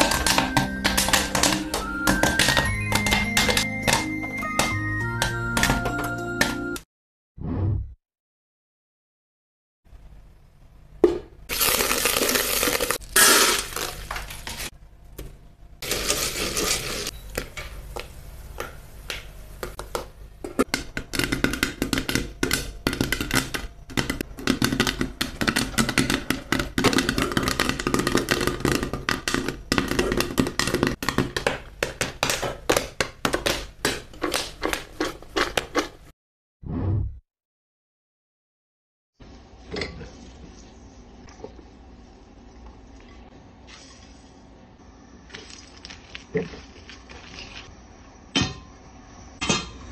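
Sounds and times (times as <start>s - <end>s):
popcorn popping: 0.0s - 6.9s, 11.0s - 36.1s
butter sizzling in a pot: 11.5s - 14.7s.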